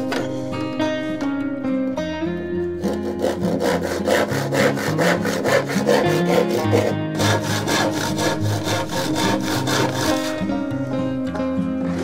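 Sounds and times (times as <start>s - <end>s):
acoustic guitar music: 0.0s - 12.0s
handsaw rasping through wood: 2.8s - 10.5s.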